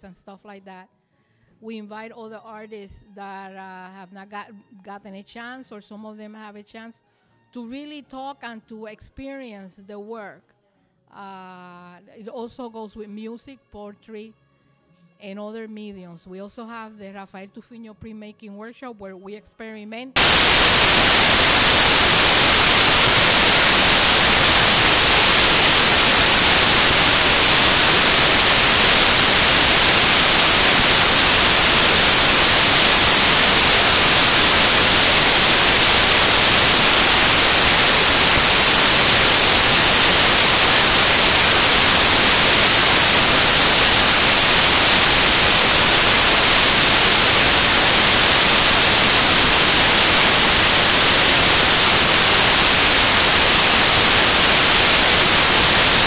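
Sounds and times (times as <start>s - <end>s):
loud static hiss: 20.2s - 56.0s.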